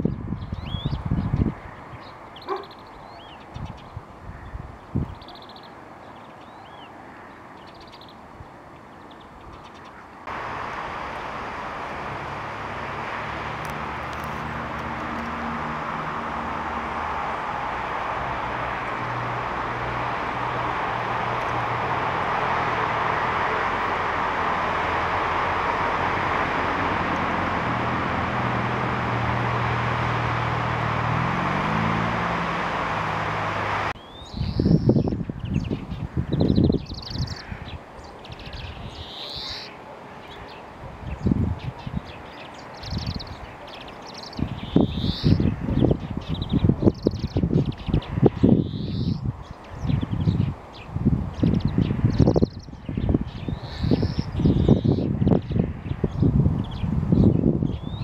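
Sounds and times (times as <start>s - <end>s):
small birds chirping: 0.0s - 10.4s, 27.2s - 58.0s
road traffic rush: 0.0s - 58.0s
low engine hum: 10.2s - 36.8s.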